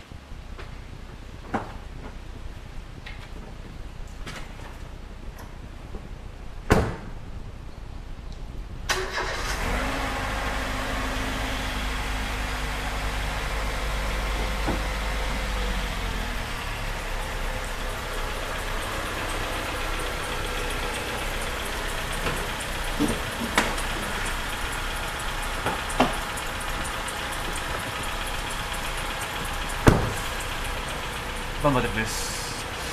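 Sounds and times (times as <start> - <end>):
thump: 6.7 - 7.1, 29.8 - 30.2
car engine starting and idling: 8.8 - 32.9.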